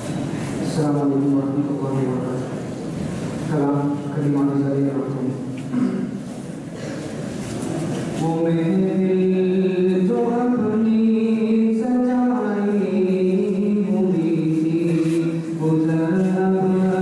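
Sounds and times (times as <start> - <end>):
man chanting unaccompanied: 8.2 - 17.0.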